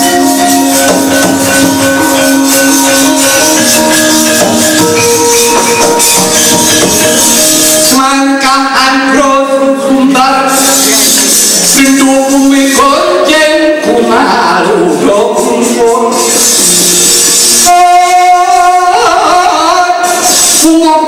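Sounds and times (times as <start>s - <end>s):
gamelan music: 0.0s - 8.4s
metallic percussion: 0.0s - 9.2s, 10.1s - 19.4s, 20.0s - 20.9s.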